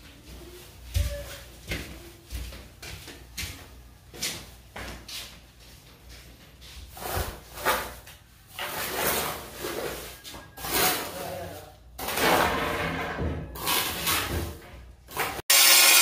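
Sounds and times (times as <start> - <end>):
trowel scraping wet mortar: 8.6 - 12.4.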